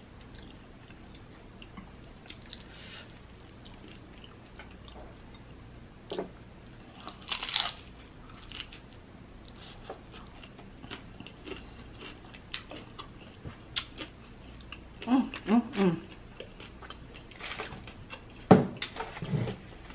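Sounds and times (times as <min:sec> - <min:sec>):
crunchy taco bite: 0:07.0 - 0:08.8
chewing with small clicks: 0:09.4 - 0:19.0.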